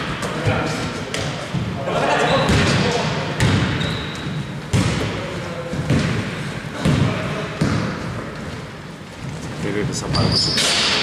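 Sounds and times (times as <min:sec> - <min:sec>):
players' voices in hall: 0:00.0 - 0:11.0
shoe squeak: 0:02.2 - 0:02.6, 0:03.7 - 0:04.6, 0:10.0 - 0:11.0
basketball bouncing on court: 0:02.4 - 0:02.8, 0:03.4 - 0:08.5.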